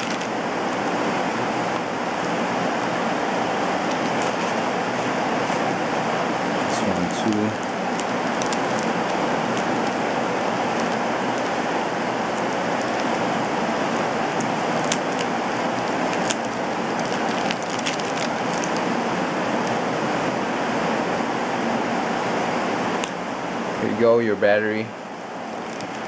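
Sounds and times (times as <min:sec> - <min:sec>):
plastic bag crinkling: 0:00.0 - 0:01.0, 0:03.8 - 0:05.8, 0:06.6 - 0:19.8, 0:25.6 - 0:26.0
rain hissing: 0:00.0 - 0:20.8.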